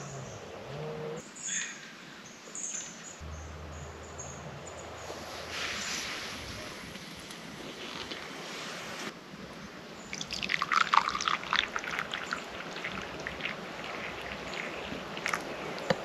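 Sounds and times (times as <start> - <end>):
drips: 10.1 - 16.0
liquid pouring: 10.1 - 16.0.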